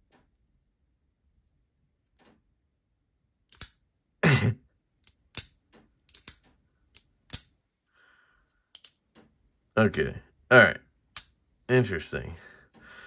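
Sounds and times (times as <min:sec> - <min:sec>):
folding knife blade clicking: 0:03.5 - 0:03.8, 0:05.0 - 0:07.5.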